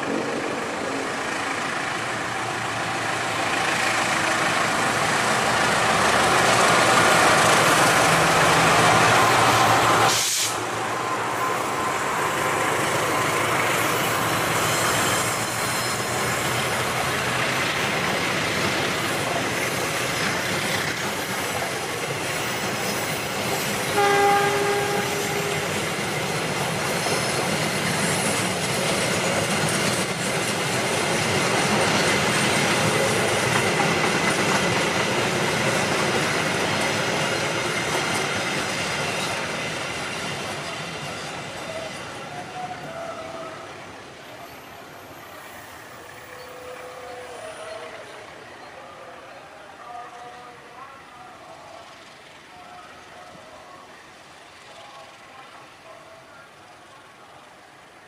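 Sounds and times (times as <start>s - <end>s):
train wheels rushing on rails: 0.0s - 58.0s
train horn blast: 23.9s - 25.9s, 46.2s - 47.9s.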